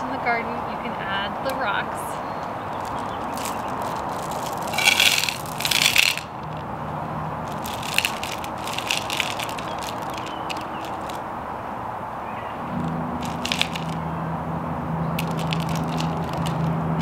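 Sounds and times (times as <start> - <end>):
rocks clicking together: 2.4 - 6.7, 7.5 - 11.2, 12.8 - 14.0, 15.2 - 16.7
rocks poured into saucer: 2.8 - 6.6, 7.5 - 11.2.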